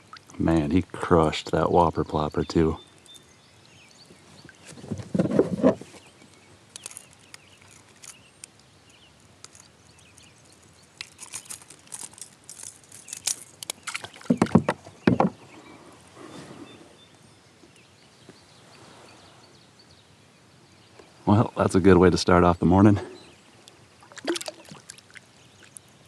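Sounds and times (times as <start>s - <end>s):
light clicks and rattles: 4.9s - 8.6s, 9.4s - 15.3s
water splash: 13.7s - 14.5s, 24.0s - 25.2s.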